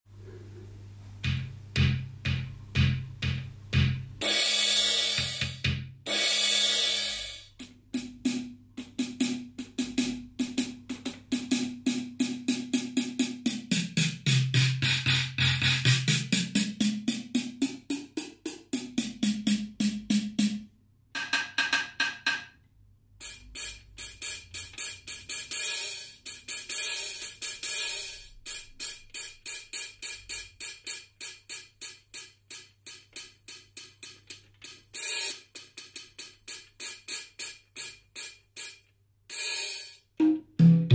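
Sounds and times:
drum machine low drum hits: 0:01.2 - 0:20.6, 0:40.2 - 0:40.9
pitched drum hits: 0:01.2 - 0:20.6, 0:40.2 - 0:40.9
rapid hi-hat ticks: 0:01.2 - 0:20.6, 0:23.2 - 0:40.1
long cymbal crashes: 0:04.2 - 0:07.6.

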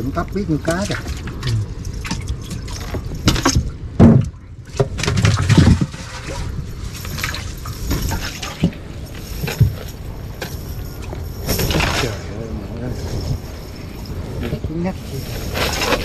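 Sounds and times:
water splashing and dripping: 0:00.1 - 0:09.9.

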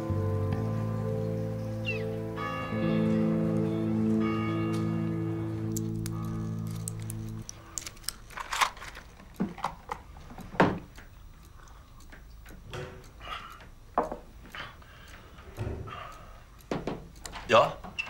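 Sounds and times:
background music: 0:00.0 - 0:07.5
laptop keys clicking: 0:05.7 - 0:11.1
small clicks and taps at desk: 0:08.9 - 0:15.7, 0:16.6 - 0:18.0.

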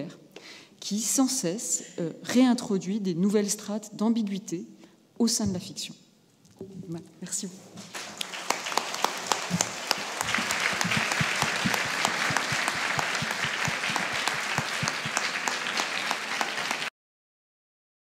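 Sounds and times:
audience applauding: 0:07.8 - 0:16.9.

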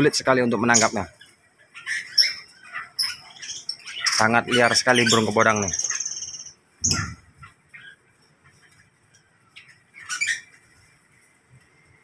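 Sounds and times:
harsh bird call: 0:00.0 - 0:08.0
faint bird chirps: 0:00.0 - 0:12.0
bird squawk: 0:00.5 - 0:08.1, 0:09.5 - 0:10.8.

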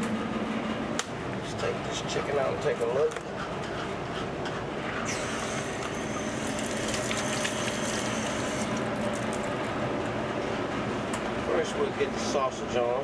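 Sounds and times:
steady low hum: 0:00.0 - 0:13.0
faucet water running into sink: 0:05.2 - 0:09.5.

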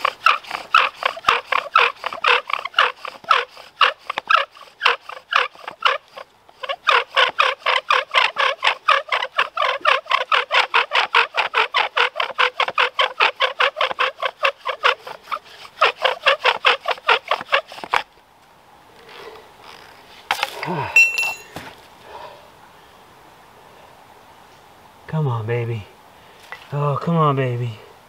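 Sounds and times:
bow drill spindle squeaking: 0:00.0 - 0:18.0, 0:19.0 - 0:20.0.

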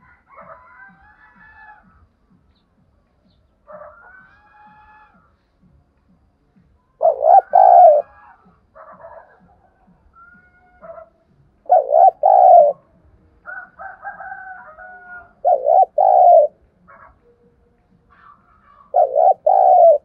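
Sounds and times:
dove cooing: 0:07.0 - 0:09.5, 0:10.2 - 0:12.9, 0:13.5 - 0:17.2, 0:18.1 - 0:20.0.

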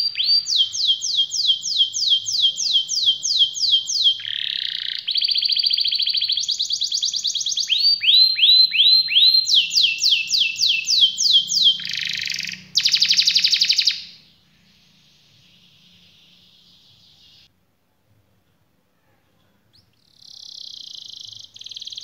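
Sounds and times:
canary singing trills: 0:00.0 - 0:17.5, 0:19.3 - 0:22.0
faint hiss: 0:14.2 - 0:22.0.

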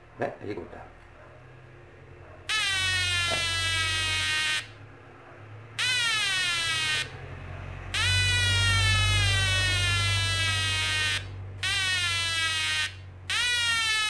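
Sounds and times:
buzzy electronic alarm tone: 0:02.5 - 0:04.8, 0:05.8 - 0:07.1, 0:07.9 - 0:14.0.

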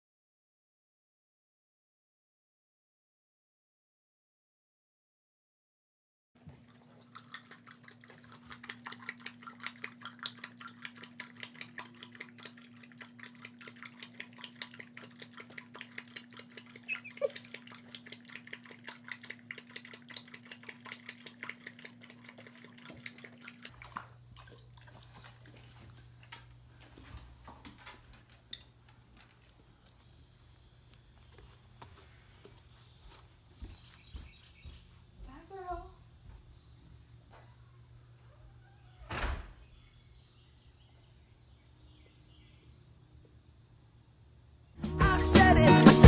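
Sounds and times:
dog lapping water: 0:06.4 - 0:27.8.

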